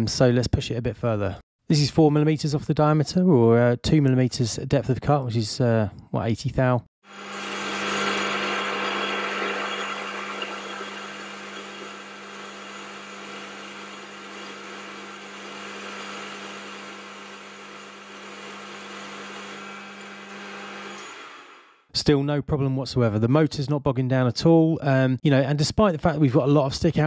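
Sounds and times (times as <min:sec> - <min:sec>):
lathe motor humming: 0:07.1 - 0:21.6.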